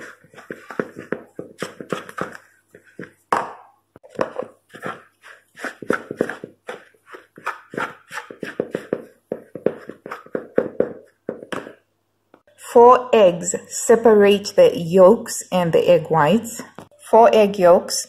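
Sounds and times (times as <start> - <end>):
whisk scraping plastic bowl: 0.0 - 2.9, 4.0 - 10.6.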